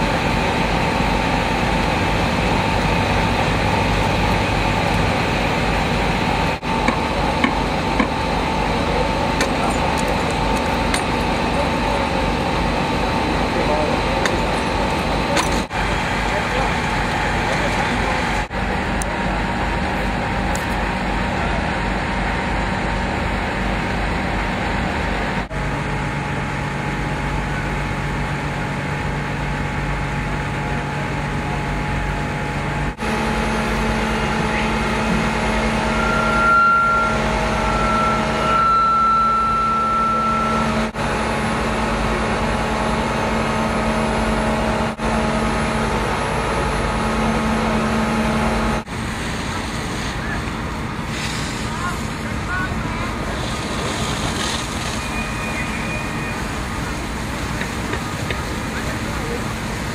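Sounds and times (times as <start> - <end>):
boat engines and pumps droning: 0.0 - 59.9
thin high whine: 33.0 - 41.0.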